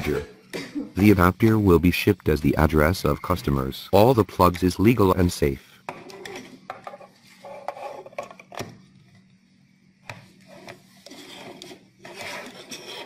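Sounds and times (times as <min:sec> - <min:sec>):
plastic rubbing and scraping: 0:06.0 - 0:08.5, 0:10.4 - 0:13.0.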